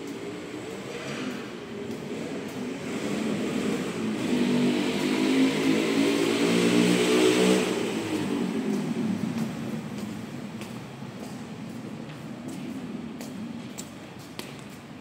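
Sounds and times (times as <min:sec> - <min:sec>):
vehicle engine passing by: 0:00.4 - 0:10.6.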